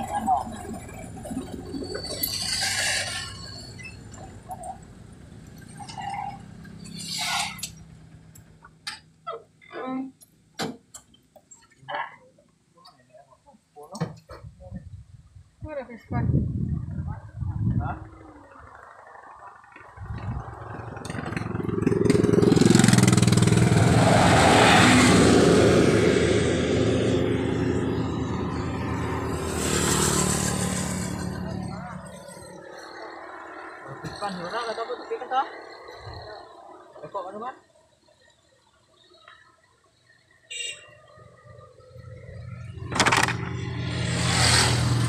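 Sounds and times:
coach bus driving past: 0:00.0 - 0:08.6, 0:18.4 - 0:37.0, 0:41.3 - 0:45.0
vehicle engine hum and road noise: 0:00.0 - 0:12.1, 0:14.0 - 0:37.4, 0:40.5 - 0:45.0.

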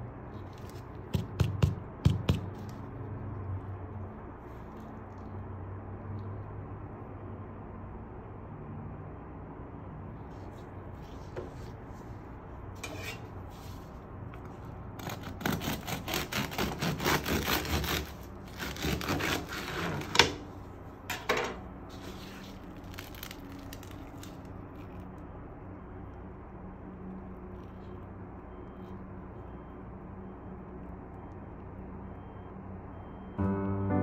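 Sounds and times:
bread knife sawing through crust: 0:15.0 - 0:20.2
sharp cracks of crust: 0:22.6 - 0:25.0.

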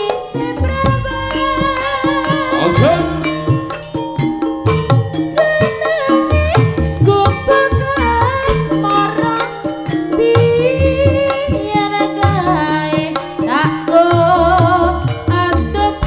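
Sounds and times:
wavering high melody: 0:00.0 - 0:12.8
hand drums beating: 0:00.0 - 0:16.0.

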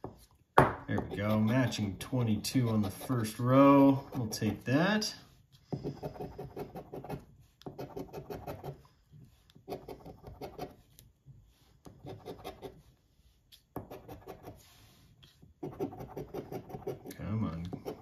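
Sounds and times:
coin scratching lottery ticket: 0:15.6 - 0:17.1.

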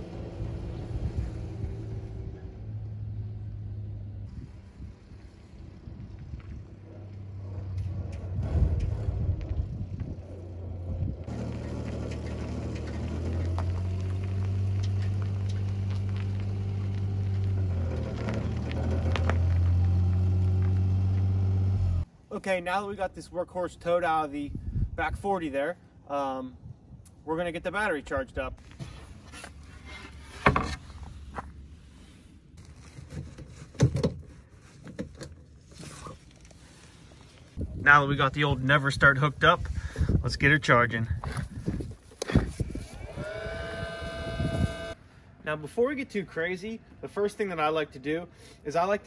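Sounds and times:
tires ticking on gravel: 0:05.6 - 0:21.7
small truck engine running: 0:06.5 - 0:22.0, 0:43.0 - 0:45.0.

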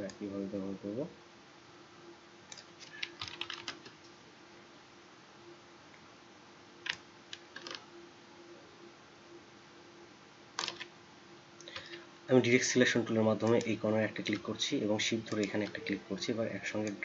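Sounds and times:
faint steady hum: 0:00.0 - 0:17.0
computer keyboard and mouse clicks: 0:02.5 - 0:04.1, 0:06.8 - 0:07.8, 0:10.6 - 0:10.9, 0:13.4 - 0:14.6, 0:15.2 - 0:16.0.

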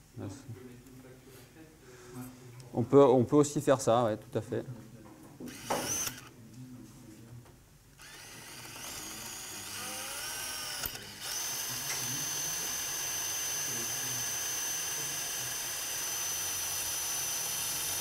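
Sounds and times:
power drill whining: 0:05.5 - 0:06.3, 0:08.0 - 0:18.0.

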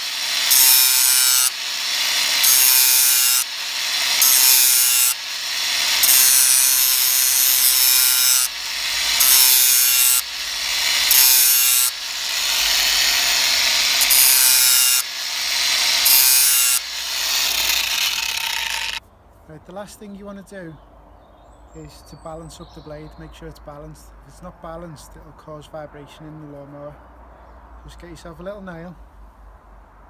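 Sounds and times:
angle grinder grinding metal: 0:00.0 - 0:19.0
grinder motor whine: 0:00.0 - 0:19.0.

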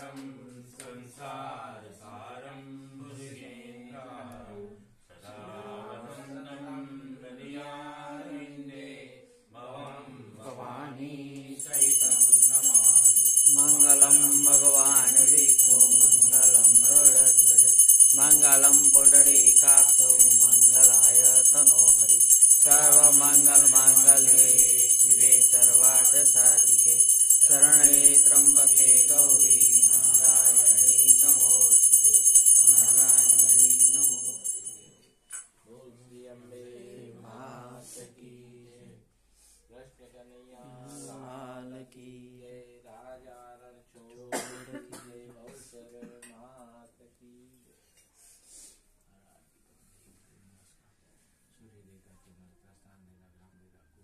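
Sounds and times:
voices singing a hymn: 0:00.0 - 0:34.8, 0:35.7 - 0:39.0
hand bell ringing rapidly: 0:11.6 - 0:34.9.

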